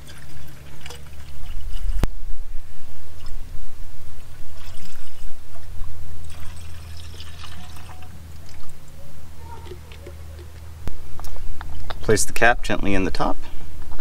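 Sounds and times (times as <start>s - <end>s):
liquid pouring into tank: 0.0s - 2.1s, 4.2s - 5.4s, 6.2s - 8.9s
steady low hum: 0.0s - 14.0s.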